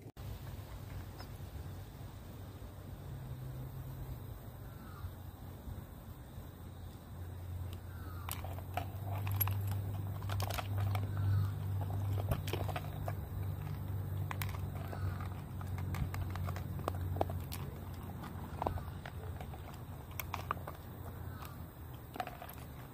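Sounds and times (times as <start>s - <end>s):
steady low hum: 0.0s - 22.9s
dog crunching food: 8.2s - 22.9s.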